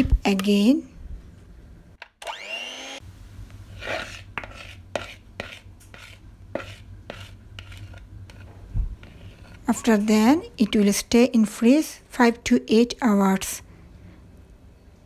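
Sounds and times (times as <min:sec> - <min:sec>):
low steady hum: 0:00.0 - 0:15.0
electric hand mixer whining: 0:02.2 - 0:03.0
spatula scraping and tapping bowl: 0:03.8 - 0:10.0.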